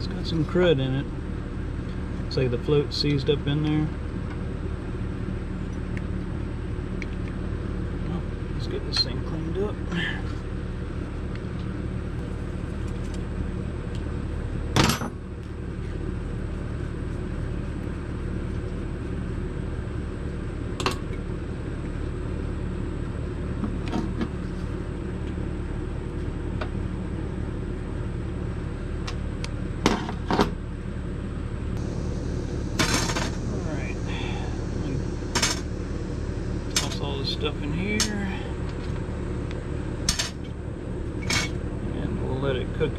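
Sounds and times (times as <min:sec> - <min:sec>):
low mechanical hum: 0:00.0 - 0:42.9.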